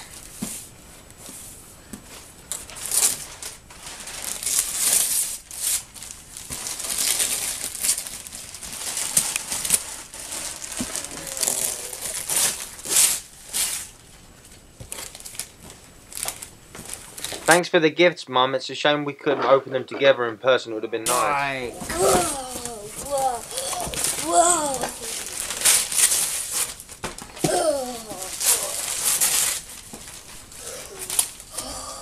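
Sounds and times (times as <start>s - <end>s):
wrapping paper ripping and crumpling: 2.5s - 14.0s, 14.8s - 17.5s, 21.3s - 32.0s.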